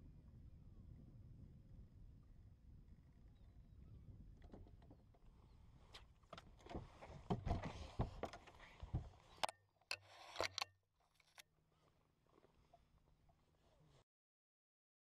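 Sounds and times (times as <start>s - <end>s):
knocks and scrapes on boat deck: 4.5s - 10.6s.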